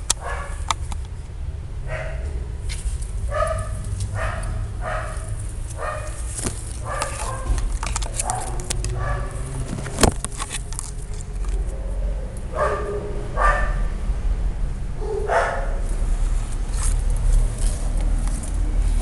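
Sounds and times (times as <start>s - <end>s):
dog barking: 0.2s - 0.6s, 1.9s - 2.3s, 3.3s - 6.2s, 6.8s - 7.6s, 8.2s - 9.4s, 12.5s - 13.9s, 15.0s - 15.8s.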